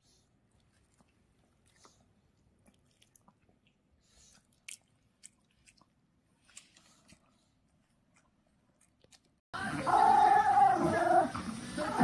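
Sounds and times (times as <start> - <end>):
dog chewing and crunching: 0.5 - 9.4.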